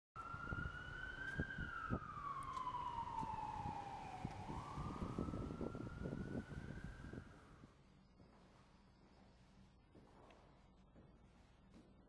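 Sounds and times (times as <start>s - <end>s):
emergency vehicle siren wailing: 0.2s - 7.8s
city street rumble: 0.2s - 8.2s.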